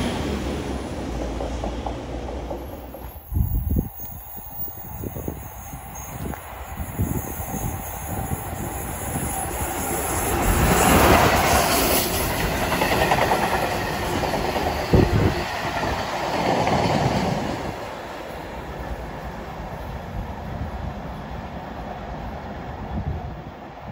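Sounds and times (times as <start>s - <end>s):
train wagons rattling over rails: 0.0s - 19.0s
locomotive passing: 0.0s - 23.0s.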